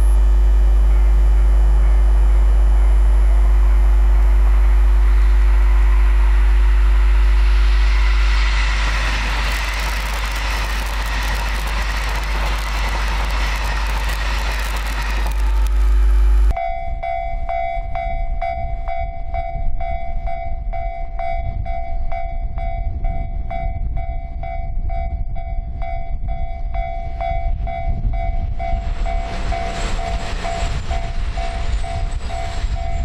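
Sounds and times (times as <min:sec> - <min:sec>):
train passing: 0:01.8 - 0:16.2, 0:26.7 - 0:33.0.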